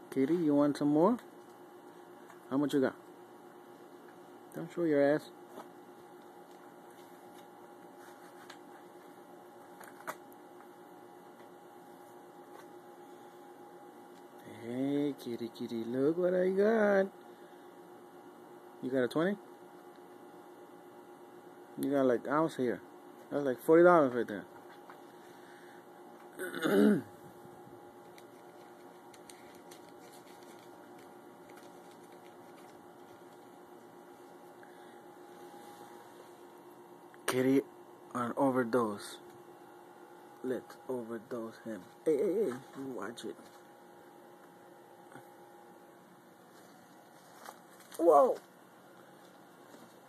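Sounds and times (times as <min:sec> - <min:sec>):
faint hum and hiss: 0:00.0 - 0:50.0.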